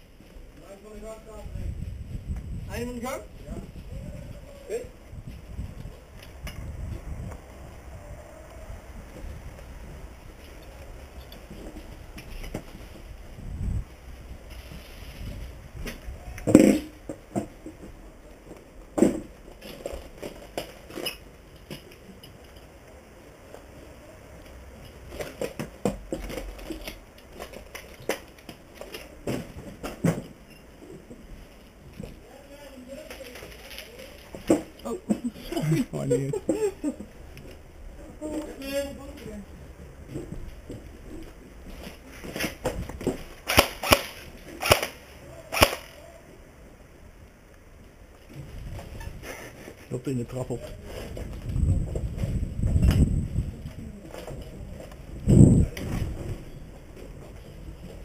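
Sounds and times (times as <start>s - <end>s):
airsoft gun shots: 43.5s - 46.0s.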